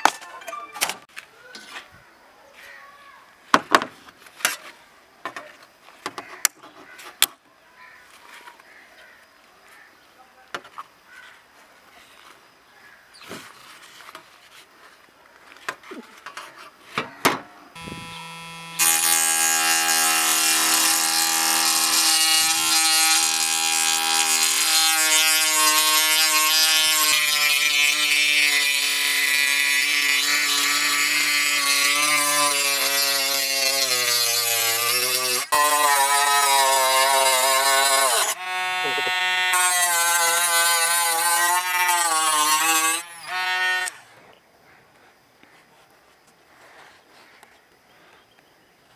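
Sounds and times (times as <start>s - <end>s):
rotary tool cutting steel: 17.8s - 44.0s.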